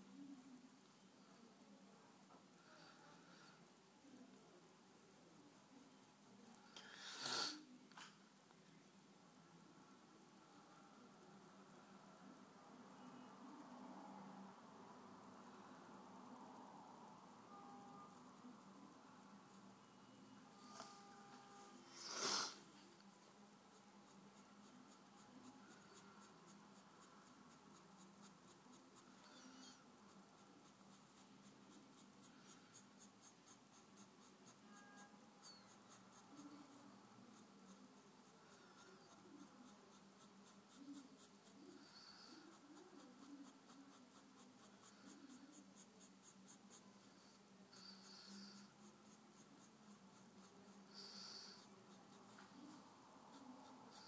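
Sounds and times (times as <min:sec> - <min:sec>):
pencil scratching on paper: 0:23.6 - 0:54.0.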